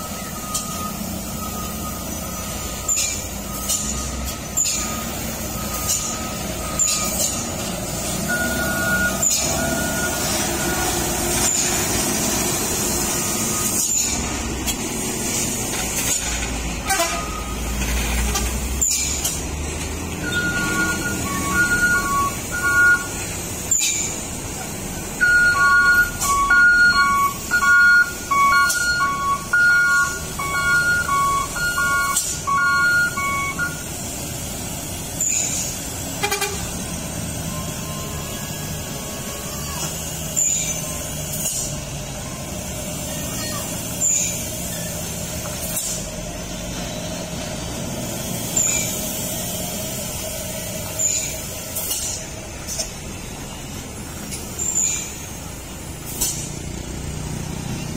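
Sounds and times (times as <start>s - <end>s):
diesel truck engine running: 0.0s - 57.9s
truck reversing alarm beeping: 0.0s - 57.9s
air brake hisses: 31.9s - 36.9s, 37.5s - 46.9s, 47.8s - 53.0s, 56.0s - 56.8s.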